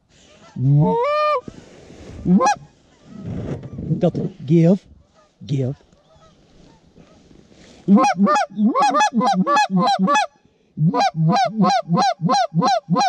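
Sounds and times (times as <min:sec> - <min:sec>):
goose call honks: 0:02.3 - 0:02.6, 0:07.9 - 0:13.0.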